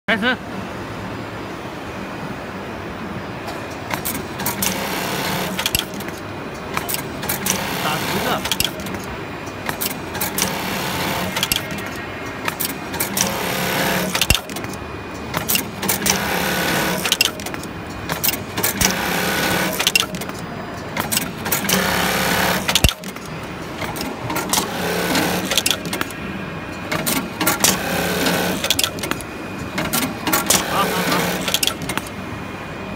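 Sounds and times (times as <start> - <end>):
mechanical clicks and knocks: 5.5 - 7.7, 8.3 - 10.6, 11.2 - 32.2
sewing machine motor humming: 6.8 - 9.0, 12.6 - 14.7, 15.5 - 20.3, 21.0 - 26.1, 27.0 - 29.2, 29.8 - 32.1.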